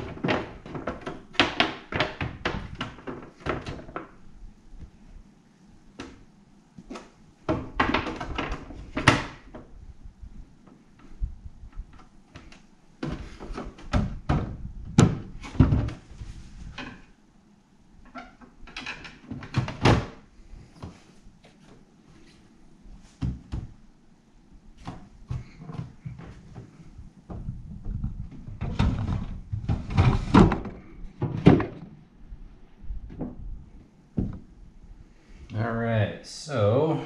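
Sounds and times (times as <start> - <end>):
plastic parts knocking and clicking: 0.0 - 4.2, 6.9 - 9.7.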